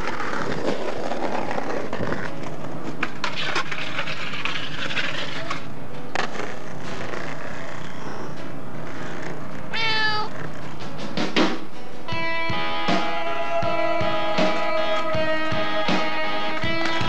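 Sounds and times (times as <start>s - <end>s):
skateboard grinding on concrete: 0.0s - 10.8s.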